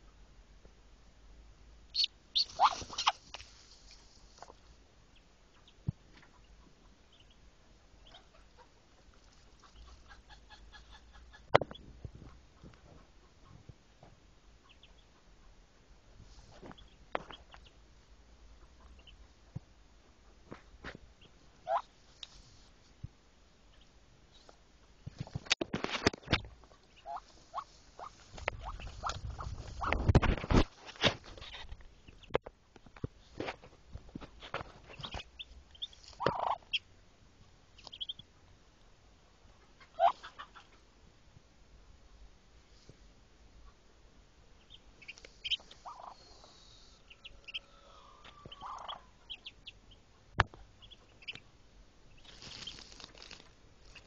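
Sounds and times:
ducklings peeping: 1.9 - 15.7, 16.3 - 19.6, 21.0 - 22.7, 23.6 - 32.4, 34.2 - 36.9, 37.6 - 38.4, 39.5 - 40.8, 44.5 - 54.0
rustling in straw: 2.4 - 4.8, 52.2 - 54.0.

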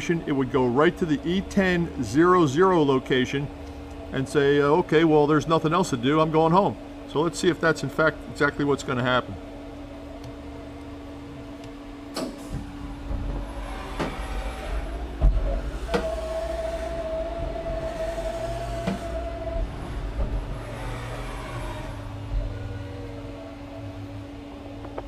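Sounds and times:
machine low hum: 0.0 - 25.0
machine axes whining: 10.0 - 25.0.

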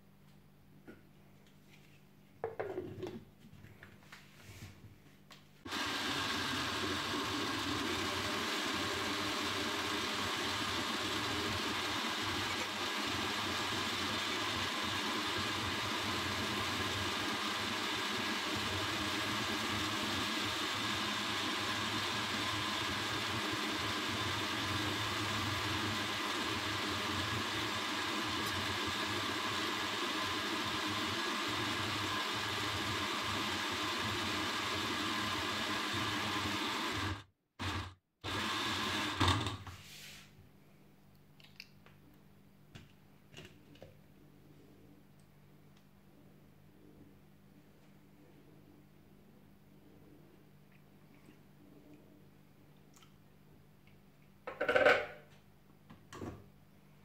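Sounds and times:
blender motor running: 5.7 - 39.6.

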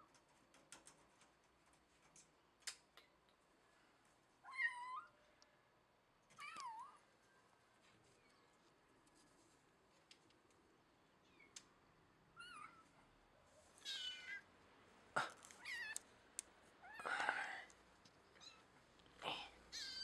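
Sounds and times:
cat meowing: 13.8 - 14.4.

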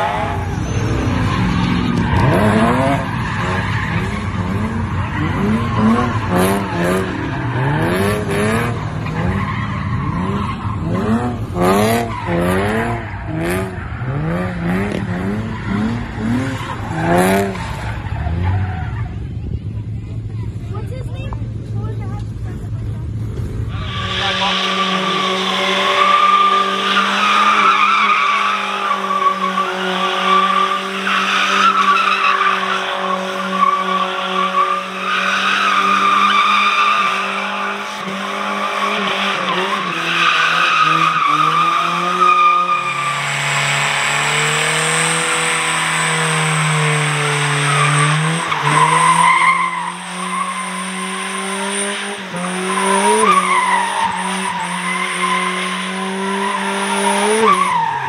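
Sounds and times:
road noise: 0.0 - 58.0
vehicle engine droning: 0.0 - 58.0.

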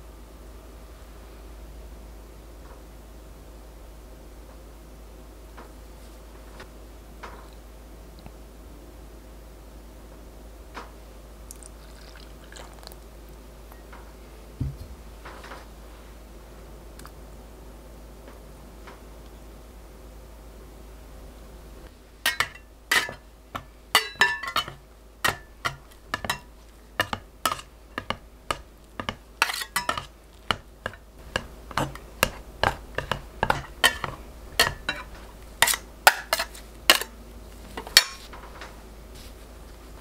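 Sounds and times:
scraper clinking against glass bowl: 22.3 - 23.2, 24.0 - 37.1
bench scraper chopping dough: 22.3 - 37.1.

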